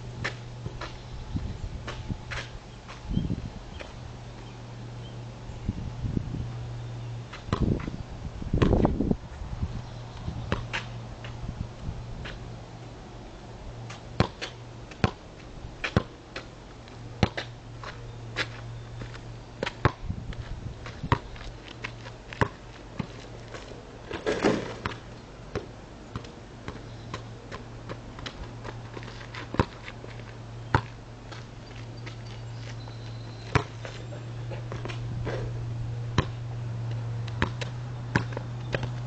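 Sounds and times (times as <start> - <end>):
steady low hum: 0.0 - 39.0
basketball bouncing on asphalt: 0.2 - 3.1, 7.3 - 9.0, 10.3 - 11.4, 13.9 - 39.0.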